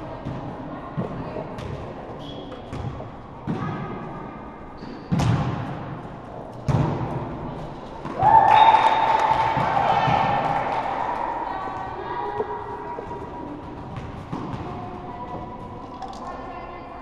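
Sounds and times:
faint chatter: 6.0s - 17.0s
volleyball thuds: 6.6s - 7.4s.

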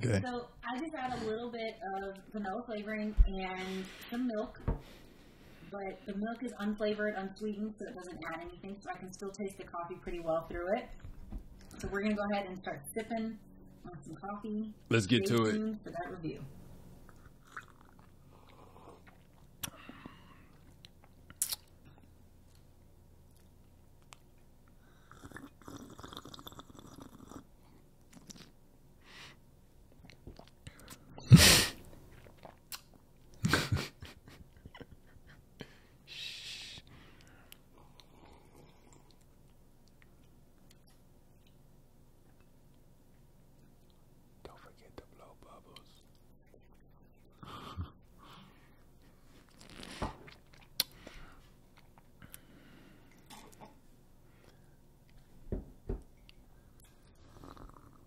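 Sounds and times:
coffee sipping and swallowing: 17.1s - 19.8s, 25.0s - 27.5s, 49.4s - 51.0s
coffee slurping: 25.0s - 27.5s
breathy laughter: 33.4s - 35.8s.

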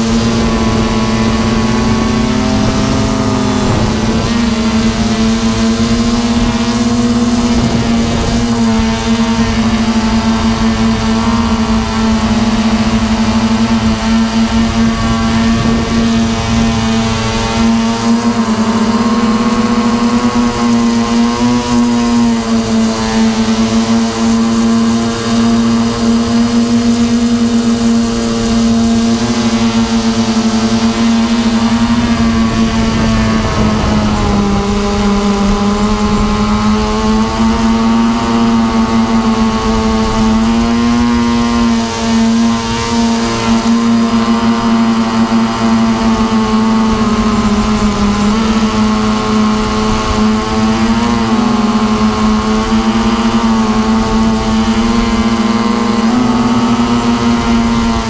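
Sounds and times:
drone motors buzzing: 0.0s - 58.0s
low rushing noise: 0.0s - 58.0s.

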